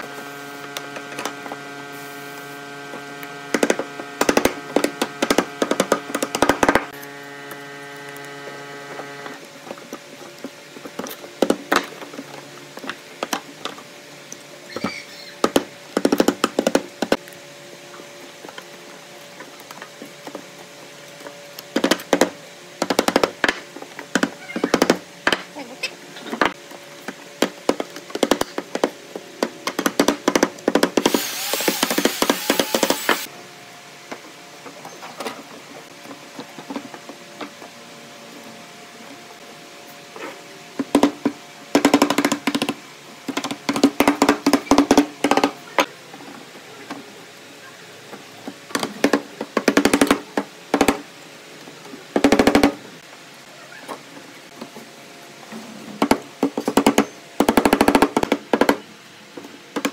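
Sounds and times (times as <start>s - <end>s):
electrical hum: 0.0s - 59.9s
hissing noise burst: 1.8s - 2.9s, 31.0s - 33.3s.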